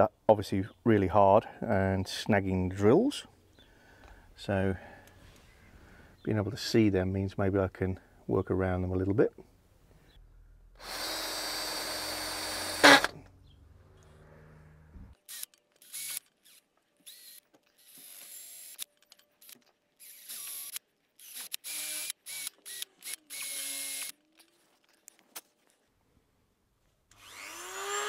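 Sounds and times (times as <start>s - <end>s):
power drill drilling: 10.8s - 13.2s, 15.3s - 18.8s, 20.0s - 24.2s, 27.1s - 28.0s.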